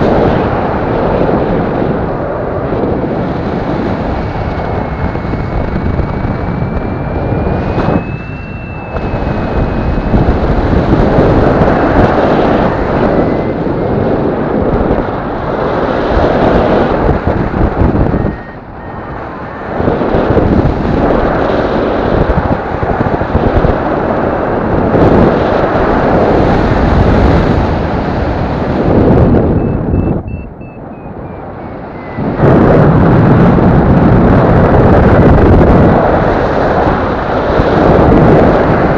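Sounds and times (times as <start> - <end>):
wind buffeting microphone: 0.0 - 38.9
faint steady tone: 4.4 - 10.6, 18.0 - 20.4, 29.5 - 32.6.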